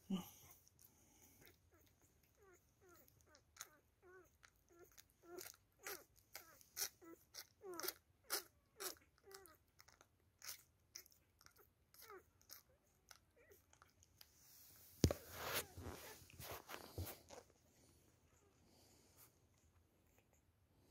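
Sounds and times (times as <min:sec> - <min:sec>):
puppy sucking on milk bottle: 0:00.5 - 0:14.4
puppy squeaky grunts: 0:01.4 - 0:12.8.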